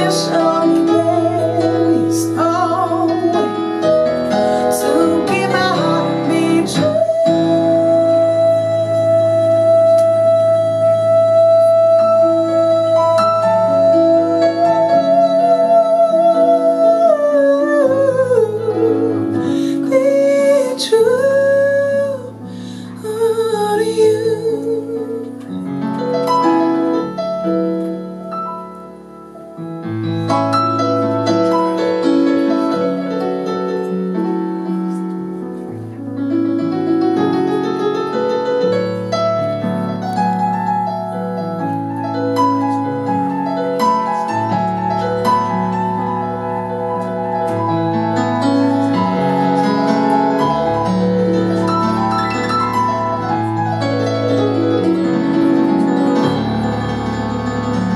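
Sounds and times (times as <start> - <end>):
woman singing: 0.0 - 25.6
keyboard playing jazz ballad: 0.0 - 57.9.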